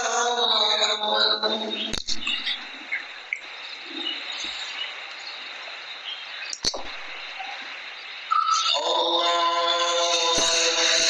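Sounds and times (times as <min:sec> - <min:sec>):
faint high chirping: 0:00.0 - 0:11.0
steady background hiss: 0:00.0 - 0:11.0
sharp click: 0:01.9 - 0:02.6, 0:06.5 - 0:07.1.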